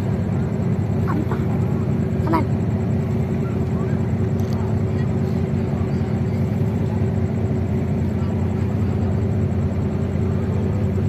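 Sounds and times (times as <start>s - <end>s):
ship engines humming: 0.0s - 11.0s.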